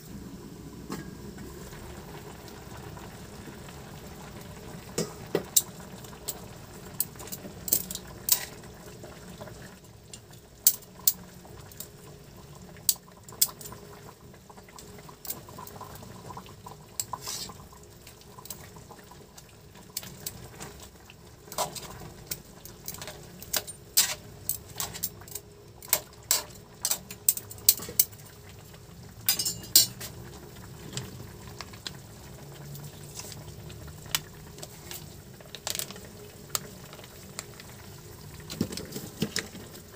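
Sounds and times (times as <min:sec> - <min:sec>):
metal tongs clinking on a wok: 0:22.9 - 0:25.1, 0:29.3 - 0:30.0.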